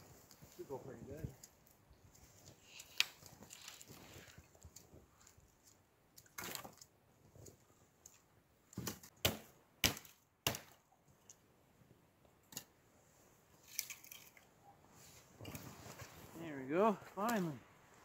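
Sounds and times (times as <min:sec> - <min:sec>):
wooden cracks and knocks: 0:06.2 - 0:06.9.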